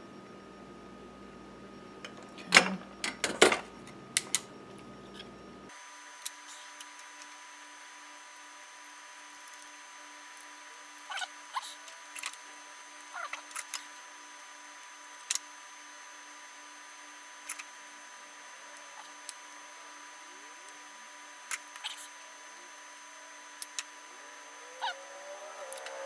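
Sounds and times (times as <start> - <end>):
faint electrical hum: 0.0 - 26.0
thin high whine: 17.5 - 26.0.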